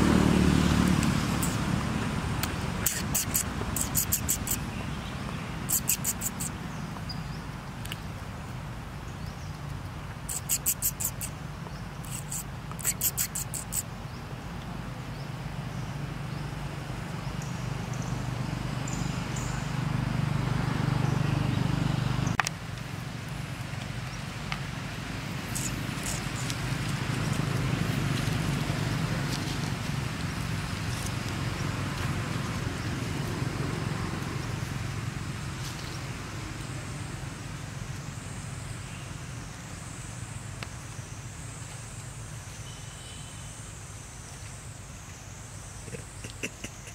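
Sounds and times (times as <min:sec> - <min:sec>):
sharp click: 0:02.4 - 0:04.6.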